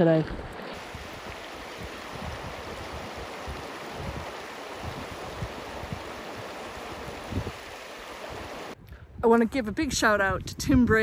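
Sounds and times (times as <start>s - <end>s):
river current rushing: 0.4s - 8.8s.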